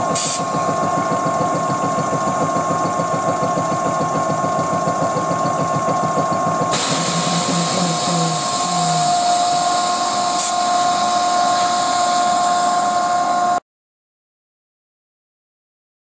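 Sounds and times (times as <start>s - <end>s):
air compressor whining: 0.0s - 13.6s
air hiss: 0.1s - 0.7s, 6.7s - 13.0s.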